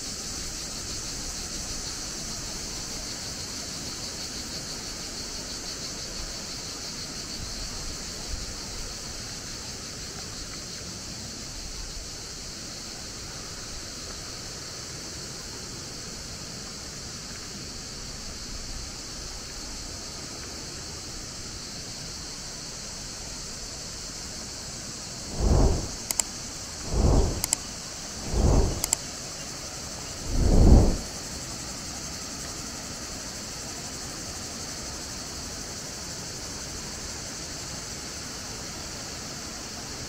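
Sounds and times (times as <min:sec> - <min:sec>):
high-pitched hiss: 0:23.9 - 0:31.4.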